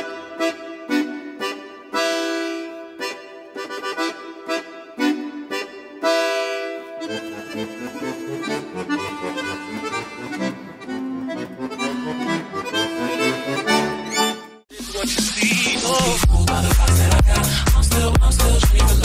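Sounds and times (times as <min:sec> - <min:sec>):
melody of held notes: 0:00.0 - 0:14.6
bass line: 0:14.7 - 0:19.0.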